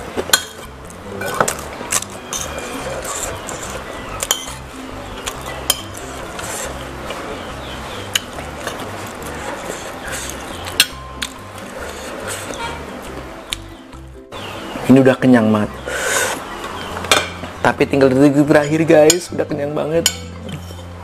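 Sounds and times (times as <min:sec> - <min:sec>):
background music with bass line: 0:00.0 - 0:21.0.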